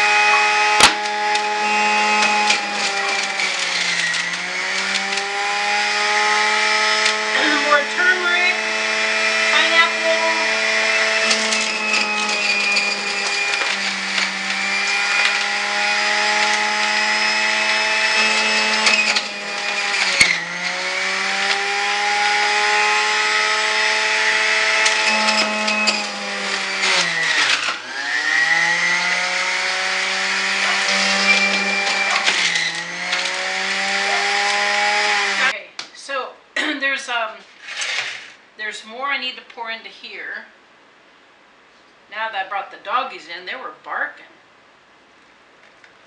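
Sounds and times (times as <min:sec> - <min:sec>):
electric juicer motor humming: 0:00.0 - 0:35.6.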